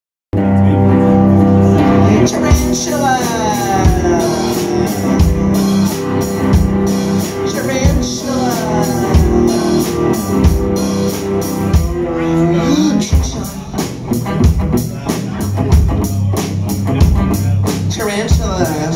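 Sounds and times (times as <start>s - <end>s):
drum kit beat: 0.4s - 18.9s
electric guitar: 0.4s - 18.9s.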